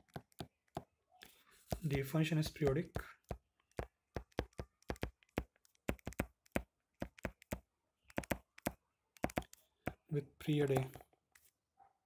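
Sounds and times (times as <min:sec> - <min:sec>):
stylus tapping on touchscreen: 0:01.7 - 0:10.1, 0:10.7 - 0:11.0.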